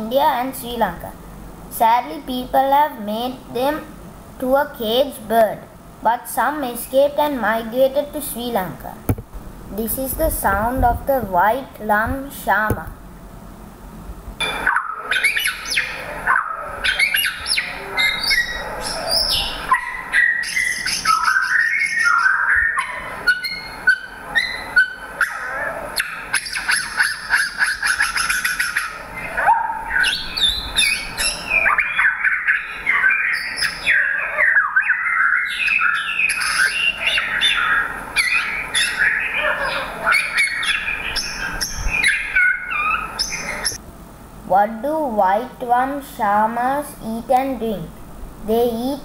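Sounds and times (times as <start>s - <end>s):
bird singing whistles and trills: 16.9s - 25.4s, 29.9s - 39.4s, 40.2s - 43.8s.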